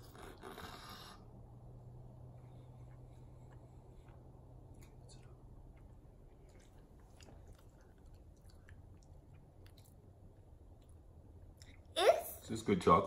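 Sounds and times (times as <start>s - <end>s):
low room hum: 0.0s - 13.0s
chewing mouth clicks and smacks: 2.7s - 11.9s.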